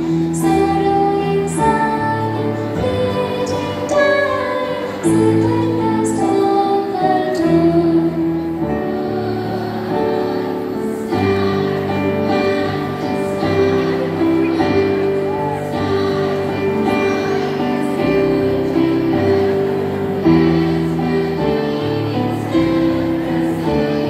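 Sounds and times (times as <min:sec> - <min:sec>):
instrumental accompaniment: 0:00.0 - 0:24.0
women's choir singing: 0:00.0 - 0:24.0.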